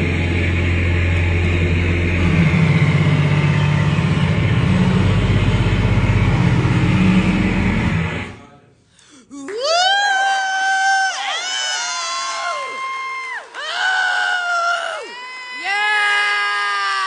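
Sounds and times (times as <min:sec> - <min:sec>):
droning electric guitar noise music: 0:00.0 - 0:08.4
strong low drone: 0:00.0 - 0:08.6.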